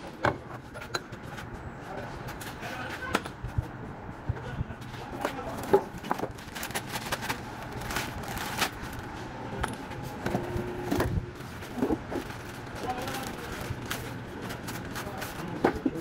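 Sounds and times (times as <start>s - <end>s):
car parts and tools handled: 0.1s - 1.5s, 4.9s - 16.0s.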